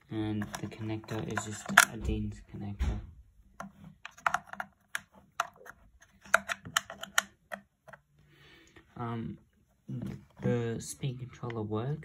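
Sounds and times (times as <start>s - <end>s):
plastic clicks and taps: 0.4s - 2.2s, 3.6s - 8.0s.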